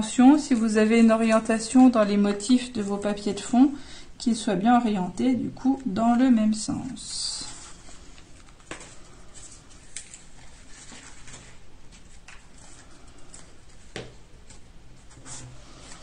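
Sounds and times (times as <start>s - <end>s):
paper rustling: 6.8s - 16.0s.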